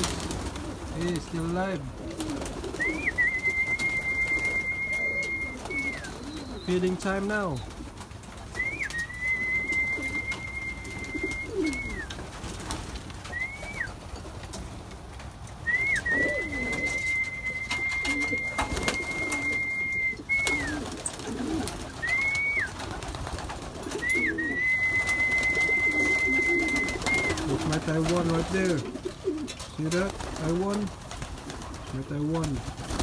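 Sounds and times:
pigeons cooing: 0.0s - 33.0s
short whistles: 2.8s - 6.2s, 8.6s - 12.1s, 13.3s - 13.9s, 15.6s - 20.9s, 22.0s - 22.7s, 24.0s - 27.5s
long steady whistle: 3.0s - 6.0s, 24.1s - 27.4s.

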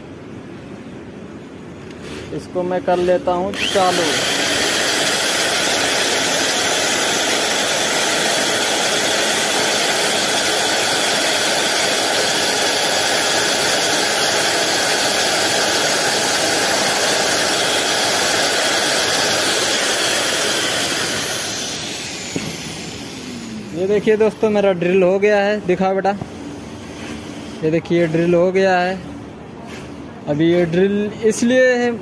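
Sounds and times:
cloth drill machine running: 3.5s - 24.5s.

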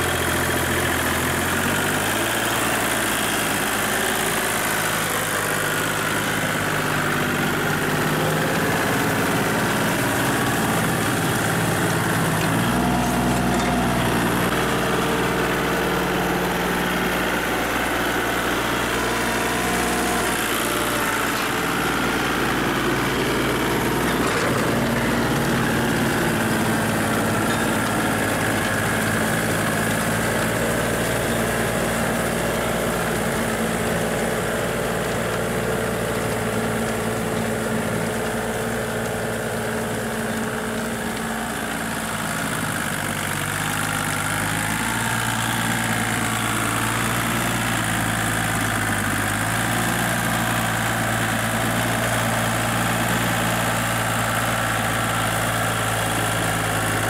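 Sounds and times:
tractor diesel engine running: 0.0s - 57.0s.

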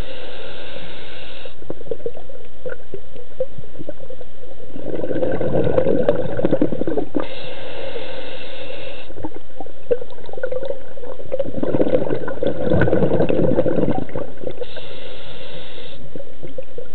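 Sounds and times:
hissing inhalation: 0.0s - 1.6s, 7.2s - 9.2s, 14.6s - 16.1s
bubbling exhalations: 4.7s - 7.5s, 9.2s - 14.9s.

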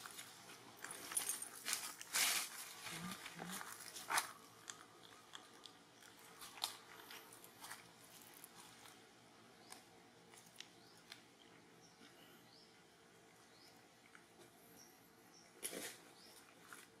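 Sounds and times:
dry leaves crunching: 0.0s - 4.4s.

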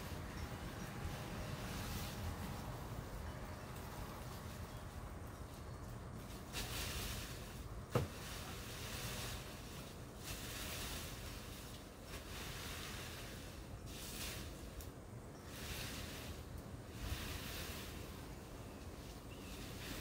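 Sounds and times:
rustling: 3.8s - 14.9s.

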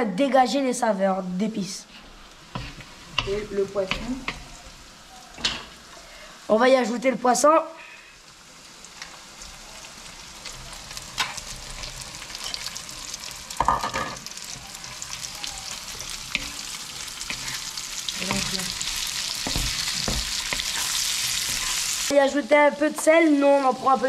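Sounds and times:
fish sizzling in hot oil: 2.0s - 24.0s
spatula knocking and scraping pan: 2.5s - 4.5s, 15.9s - 22.1s.

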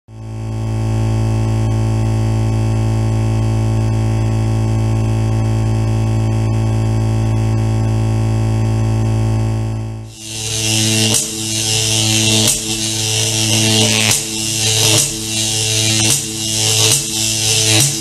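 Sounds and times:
deep buzzing drone: 0.1s - 18.0s
layered high electronic tones: 10.1s - 18.0s.

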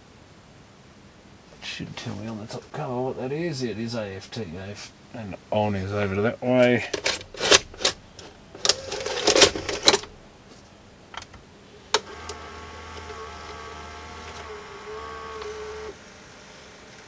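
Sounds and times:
cassette clicks and plastic clatter: 6.9s - 10.2s, 11.1s - 13.6s
loading motor whirring: 7.3s - 10.2s, 11.9s - 16.0s
vcr mechanism click: 11.2s - 15.9s.

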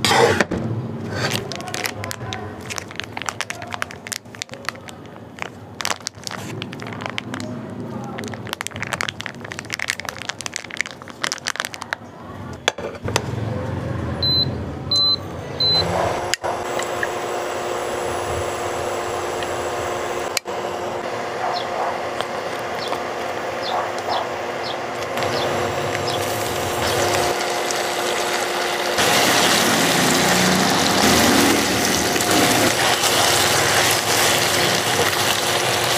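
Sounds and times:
plastic package crinkling: 1.2s - 12.1s, 30.7s - 35.9s
steady machine hum: 15.9s - 35.9s.

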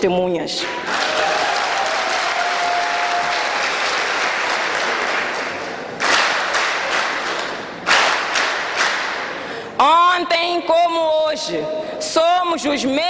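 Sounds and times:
applause: 0.6s - 9.5s.

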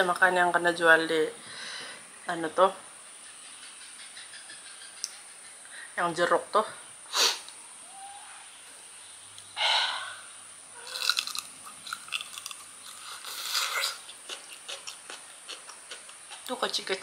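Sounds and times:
breathy rush of noise: 9.5s - 10.6s
crunchy fruit bites and chewing: 10.8s - 16.9s.

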